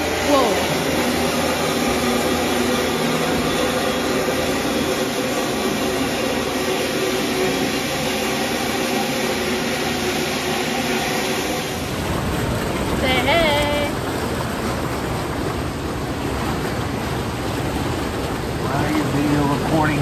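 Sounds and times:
water pouring into pool: 0:11.4 - 0:20.0.

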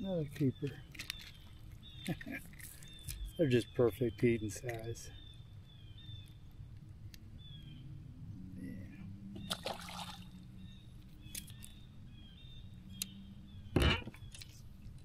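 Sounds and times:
small birds chirping: 0:00.0 - 0:15.0
water splashing: 0:09.4 - 0:10.4
water trickling: 0:09.4 - 0:10.5.

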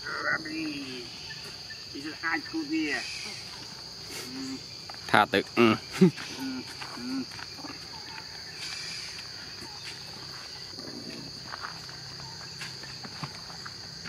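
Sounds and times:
insects droning: 0:00.0 - 0:14.0
footsteps: 0:03.5 - 0:14.0.

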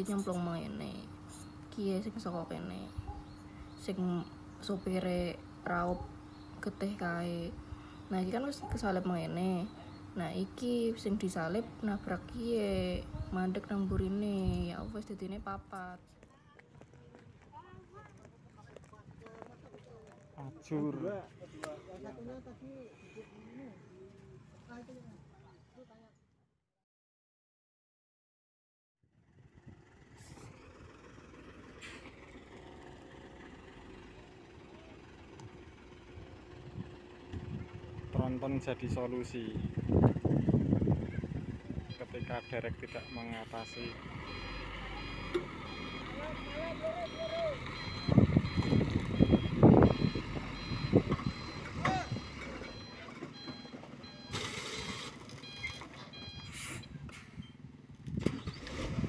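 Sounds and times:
truck diesel engine running: 0:29.2 - 0:58.7
short air hisses: 0:56.5 - 0:57.4.

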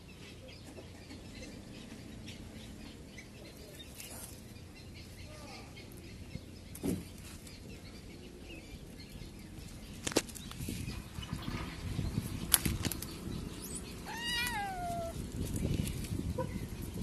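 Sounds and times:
kitten meowing: 0:14.0 - 0:15.2.

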